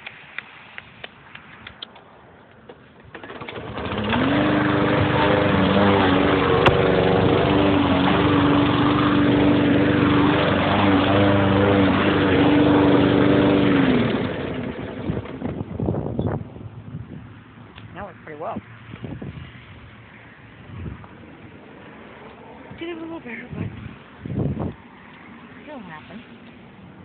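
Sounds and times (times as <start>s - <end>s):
lawn mower engine running: 2.7s - 17.6s.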